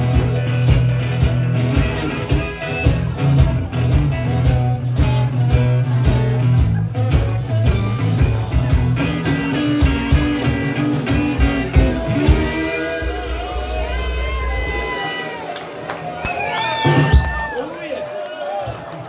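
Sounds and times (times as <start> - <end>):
resonator guitar: 0.0 - 13.4
drum kit beat: 0.0 - 15.1.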